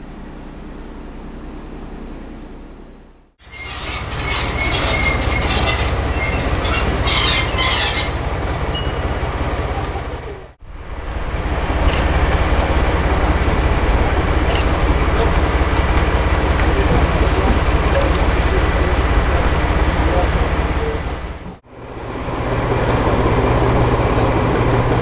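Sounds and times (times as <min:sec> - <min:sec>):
locomotive engine rumble: 0:00.0 - 0:25.0
wheels squealing on rails: 0:03.4 - 0:25.0.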